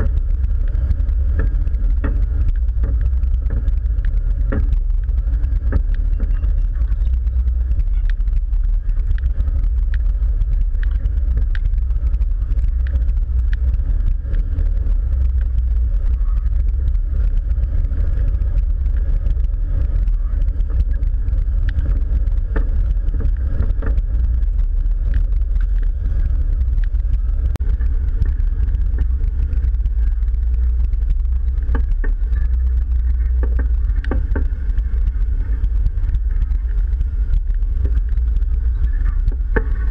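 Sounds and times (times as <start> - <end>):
clicks and knocks over rocks: 0.0 - 39.9
vehicle engine low drone: 0.0 - 39.9.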